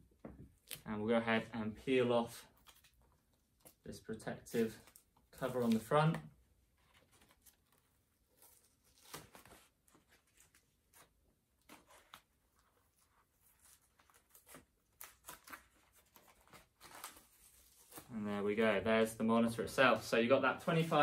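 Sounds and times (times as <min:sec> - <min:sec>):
paper sheet rustling: 0:19.8 - 0:21.0.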